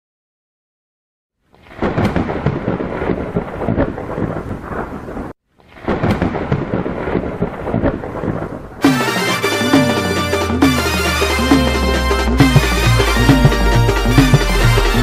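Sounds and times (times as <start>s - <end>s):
rumbling thunder: 1.8s - 9.1s
heavy rain: 1.8s - 15.0s.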